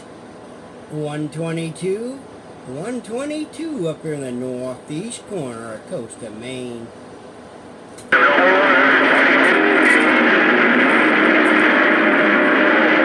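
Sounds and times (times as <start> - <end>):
garbled radio voices: 8.1 - 13.0
radio static: 8.1 - 13.0.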